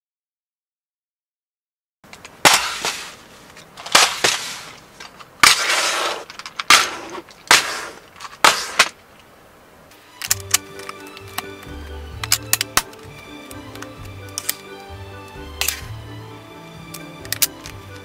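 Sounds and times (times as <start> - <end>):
plastic bricks rattling: 2.2 - 9.0
music with ticking beat: 10.3 - 18.0.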